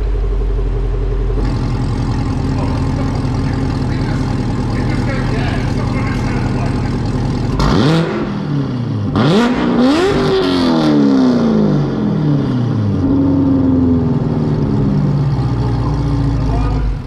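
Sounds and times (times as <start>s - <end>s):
car engine idling: 0.0s - 17.0s
loud car engine revving: 1.2s - 17.0s.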